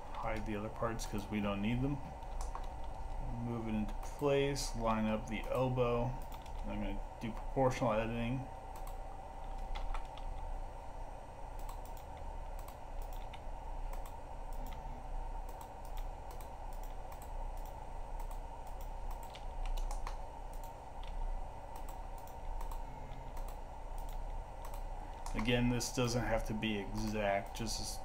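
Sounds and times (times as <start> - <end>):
low hum: 0.0 - 28.0
keyboard and mouse clicks: 2.2 - 3.2, 4.8 - 7.5, 8.7 - 10.5, 11.6 - 25.6.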